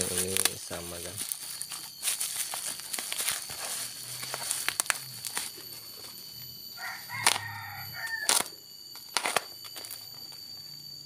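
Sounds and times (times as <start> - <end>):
rooster crowing: 6.6 - 8.6.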